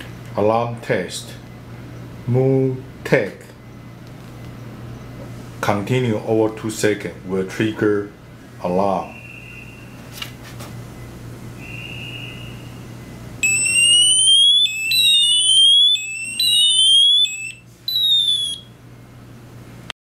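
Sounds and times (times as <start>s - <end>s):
electronic alarm siren: 11.6s - 12.8s, 13.4s - 18.8s
short warning beep: 13.4s - 18.7s.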